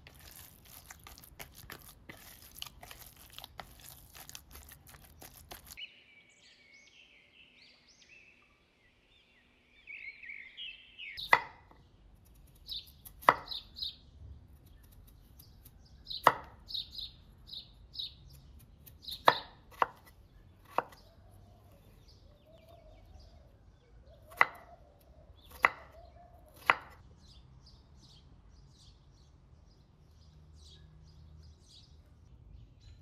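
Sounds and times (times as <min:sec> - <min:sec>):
knife chopping on wooden board: 0:11.2 - 0:11.8, 0:13.0 - 0:13.6, 0:16.2 - 0:16.6, 0:18.8 - 0:21.0, 0:24.3 - 0:24.7, 0:25.5 - 0:27.0.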